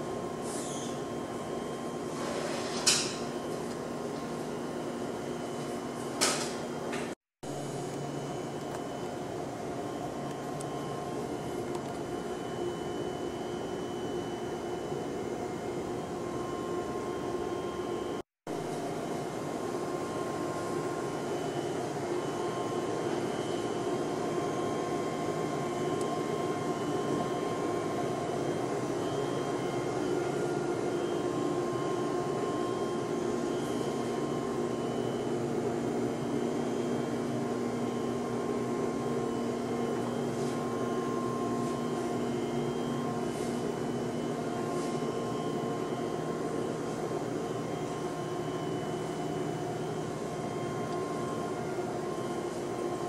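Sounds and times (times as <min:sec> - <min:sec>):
steady whining tones: 0:19.5 - 0:53.0.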